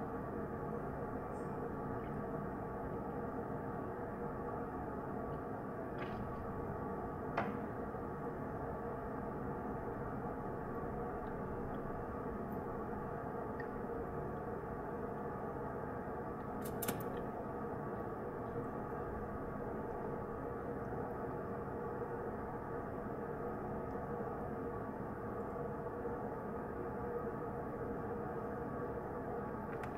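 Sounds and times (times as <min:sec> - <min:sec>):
faint steady tonal hum: 0:00.0 - 0:29.9.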